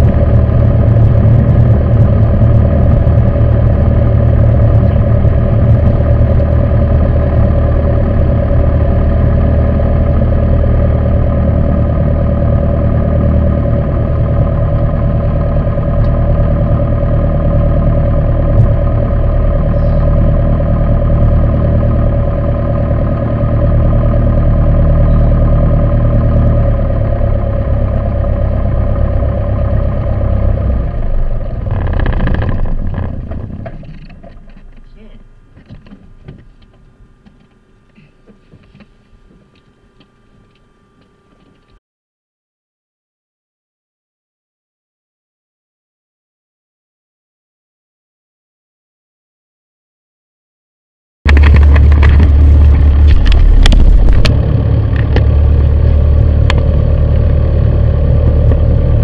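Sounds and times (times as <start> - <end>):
propeller engine droning: 0.0 - 41.8, 51.3 - 59.0.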